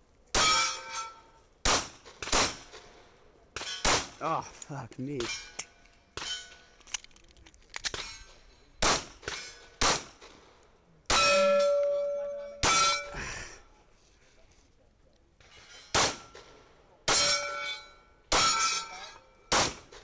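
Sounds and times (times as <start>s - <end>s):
steel plate targets clanging: 0.3s - 1.4s, 5.1s - 6.8s, 7.9s - 10.4s, 11.1s - 13.2s, 15.4s - 20.0s
pistol shots: 1.6s - 2.8s, 3.6s - 4.2s, 8.8s - 11.5s, 15.9s - 16.3s, 19.5s - 20.0s.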